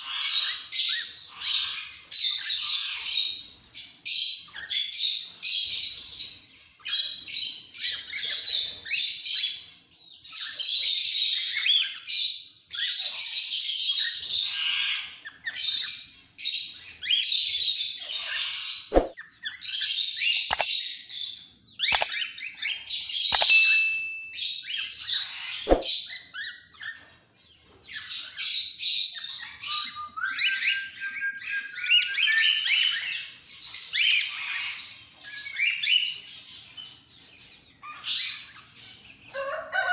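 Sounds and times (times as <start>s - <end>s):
cockatiels chirping and screeching: 0.0s - 39.9s
sharp clicks: 20.5s - 20.7s, 21.8s - 22.1s, 23.3s - 23.8s.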